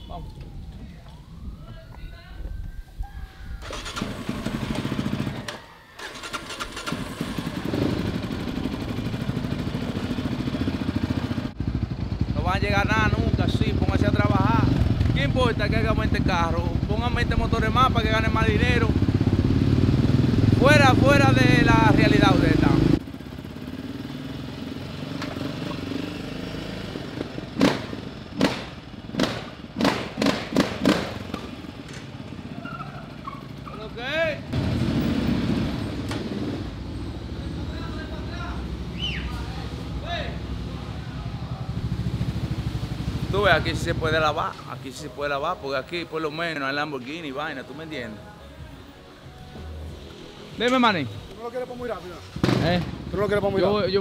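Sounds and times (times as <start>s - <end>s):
atv engine starting and running: 3.6s - 44.5s, 52.3s - 54.0s
quad engine running low: 3.7s - 5.6s, 6.6s - 15.3s.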